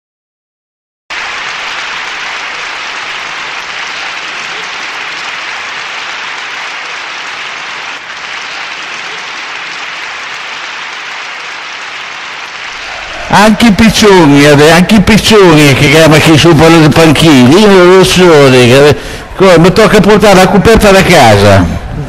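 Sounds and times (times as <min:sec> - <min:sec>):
audience applauding: 0:01.1 - 0:17.8.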